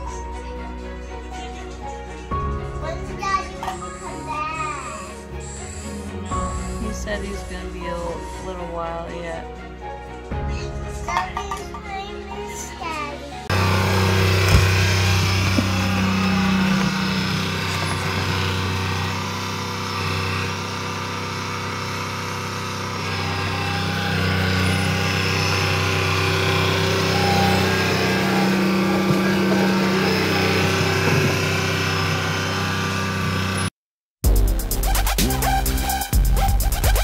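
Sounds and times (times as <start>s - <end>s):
engine running: 2.8s - 9.4s, 13.4s - 33.7s.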